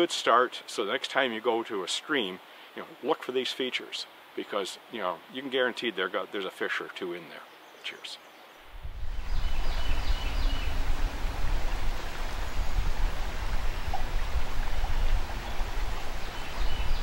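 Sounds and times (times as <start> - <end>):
bird singing: 7.0 - 10.8, 15.4 - 17.0
river water rushing: 8.6 - 17.0.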